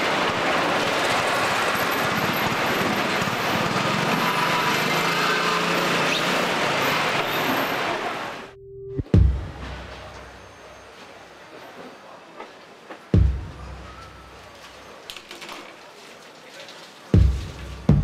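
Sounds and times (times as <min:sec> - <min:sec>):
handcart rattling over concrete: 0:14.6 - 0:17.4.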